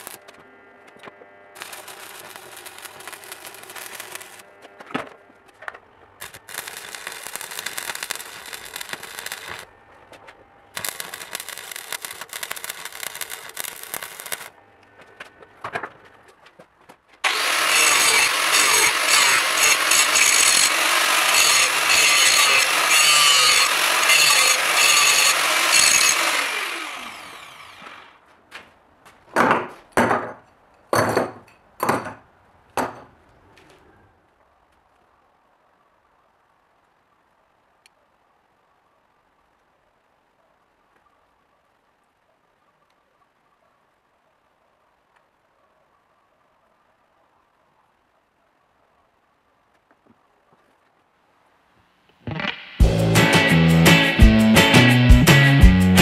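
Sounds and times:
angle grinder grinding steel: 0:00.0 - 0:00.3, 0:01.6 - 0:04.4, 0:06.2 - 0:09.6, 0:10.8 - 0:14.5, 0:17.2 - 0:28.1
arc welding crackling: 0:00.0 - 0:00.4, 0:01.5 - 0:04.5, 0:06.2 - 0:14.6, 0:17.2 - 0:28.0.

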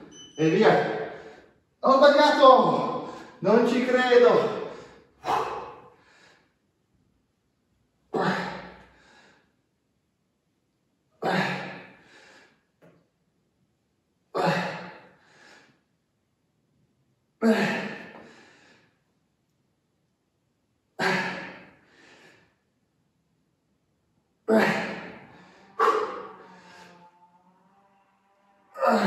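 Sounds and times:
man exhaling forcefully with grunts: 0:04.8 - 0:06.3, 0:08.1 - 0:09.2, 0:21.0 - 0:21.8, 0:24.5 - 0:27.0.

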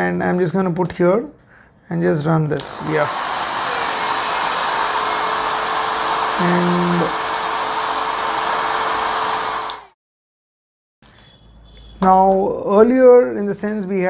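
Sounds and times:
hair dryer running: 0:02.8 - 0:10.0.

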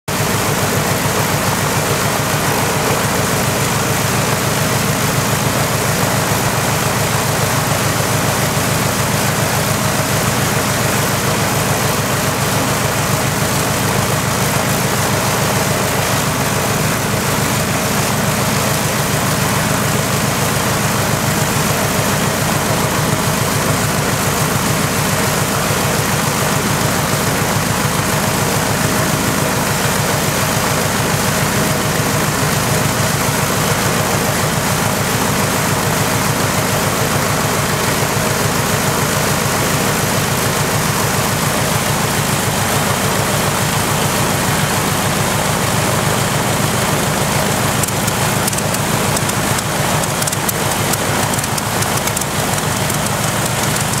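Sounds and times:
aircraft engine running: 0:00.1 - 0:54.0.

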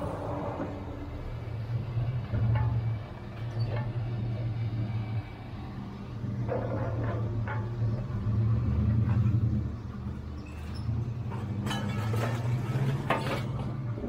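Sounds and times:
machine engine droning: 0:00.0 - 0:14.0
scrap metal clattering: 0:06.4 - 0:09.7, 0:10.4 - 0:14.0.

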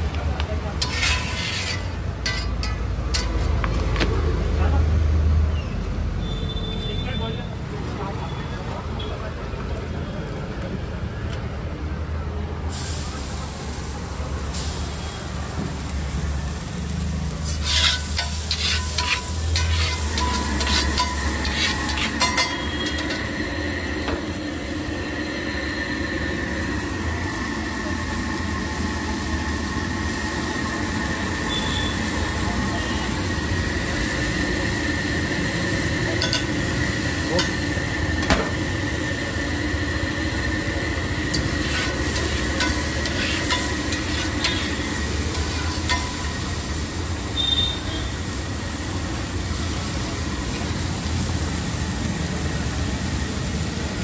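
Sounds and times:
eggs sizzling on griddle: 0:00.0 - 0:04.3, 0:12.6 - 0:54.0
metal spatula scraping pan: 0:00.8 - 0:03.5, 0:17.4 - 0:23.4, 0:41.3 - 0:46.5.

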